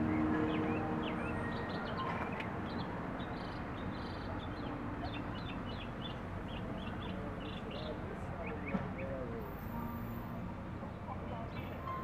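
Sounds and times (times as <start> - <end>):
small birds chirping: 0.0 - 9.1.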